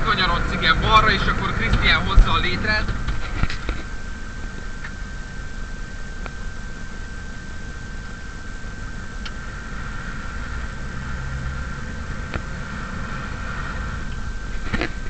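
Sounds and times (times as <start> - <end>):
thin steady whine: 0.0 - 15.0
truck engine running: 0.0 - 15.0.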